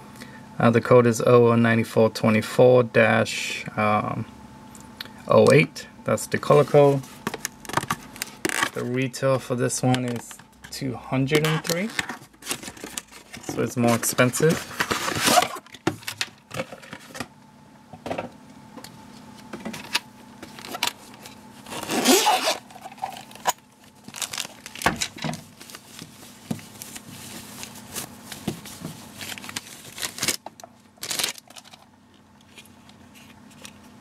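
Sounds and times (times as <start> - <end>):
clicks and rustles of handling: 9.8 - 17.3
zipper being pulled open: 21.7 - 22.8.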